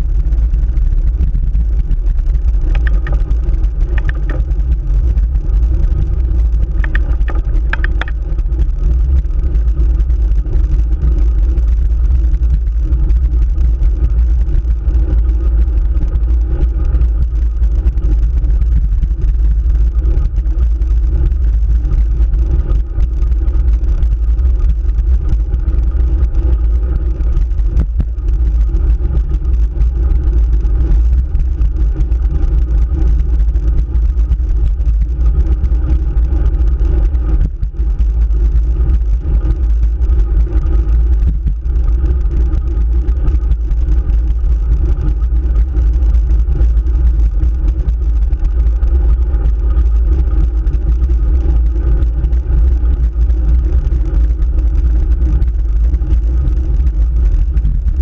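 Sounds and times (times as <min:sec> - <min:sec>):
road vibration rumble: 0:00.0 - 0:58.0
wind noise: 0:00.0 - 0:58.0.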